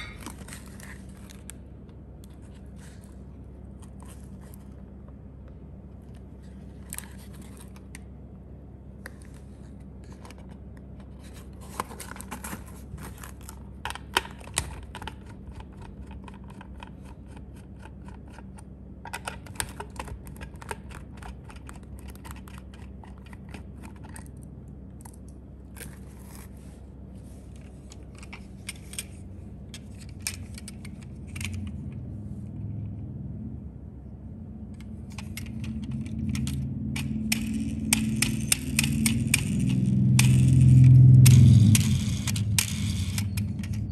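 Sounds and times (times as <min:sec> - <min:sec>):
steady low hum: 0:00.0 - 0:43.9
cardboard packaging being handled: 0:11.1 - 0:13.7.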